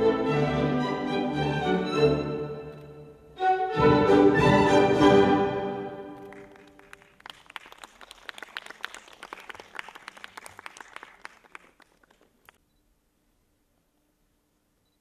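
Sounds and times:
orchestral string music: 0:00.0 - 0:06.7
audience applause: 0:06.1 - 0:12.6.

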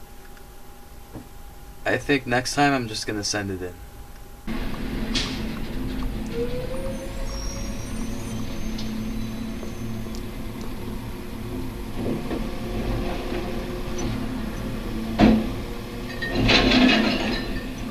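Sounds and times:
truck engine running: 0:04.5 - 0:17.9.

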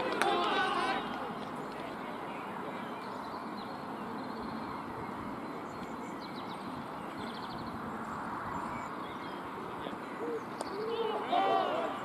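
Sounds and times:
outdoor background noise: 0:00.0 - 0:12.0.

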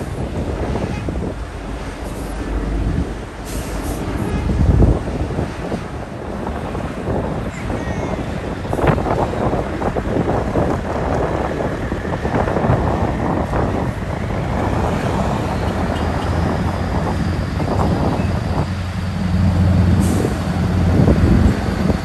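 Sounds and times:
wind buffeting microphone: 0:00.0 - 0:22.0
truck diesel engine passing: 0:11.5 - 0:22.0.

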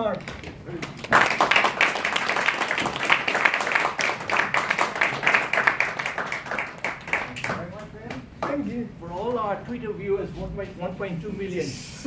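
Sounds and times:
audience applauding: 0:00.8 - 0:07.9.

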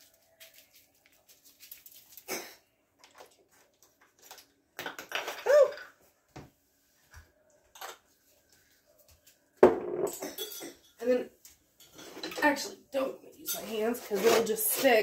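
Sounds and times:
person exclaiming oh: 0:05.4 - 0:05.8.

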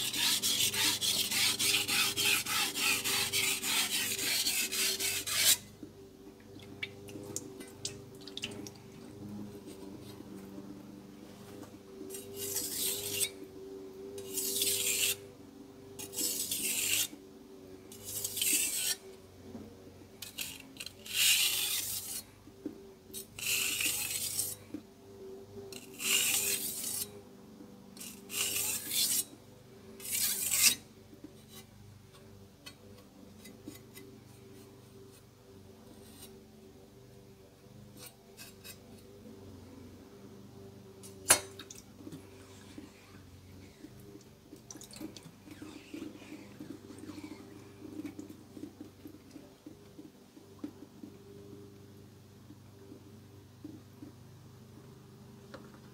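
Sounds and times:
knife scraping on whetstone: 0:00.0 - 0:05.7, 0:12.1 - 0:13.4, 0:14.2 - 0:15.2, 0:16.0 - 0:17.2, 0:17.9 - 0:19.0, 0:20.2 - 0:22.3, 0:23.2 - 0:24.6, 0:25.7 - 0:27.2, 0:28.0 - 0:29.3, 0:30.0 - 0:30.8.

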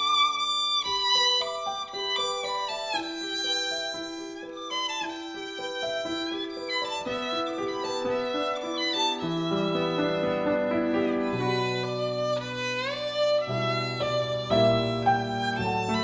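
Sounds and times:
bowed violin melody: 0:00.0 - 0:16.0
piano accompaniment: 0:00.0 - 0:16.0
low piano chords: 0:05.3 - 0:16.0.

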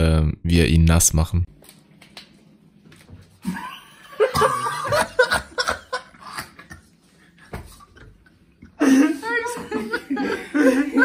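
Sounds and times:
people stifled laughing: 0:03.4 - 0:11.0.

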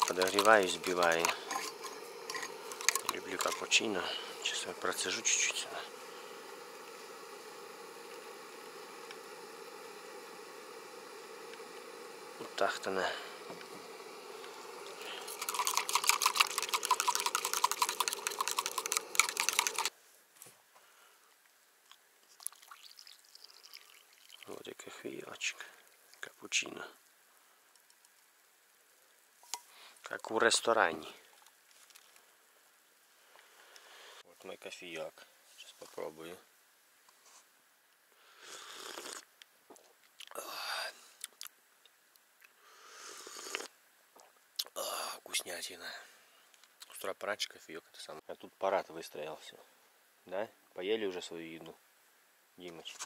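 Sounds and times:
electric milk frother whirring: 0:00.0 - 0:19.9
person slurping from a cup: 0:14.4 - 0:19.9, 0:38.4 - 0:39.3, 0:43.0 - 0:43.7.

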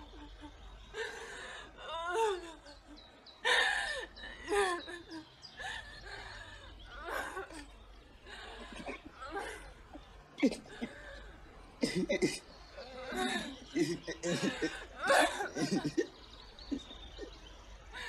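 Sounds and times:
woman sobbing: 0:00.0 - 0:18.0.

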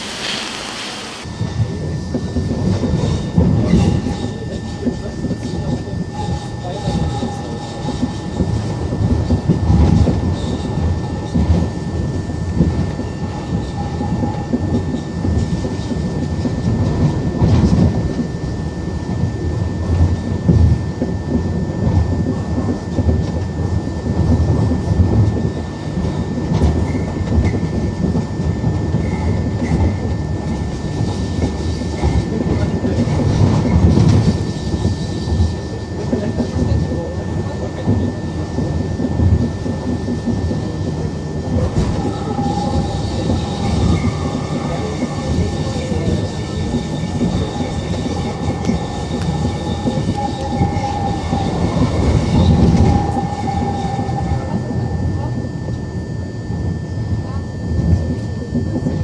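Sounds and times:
wheels rumbling on rail: 0:00.0 - 0:59.0.

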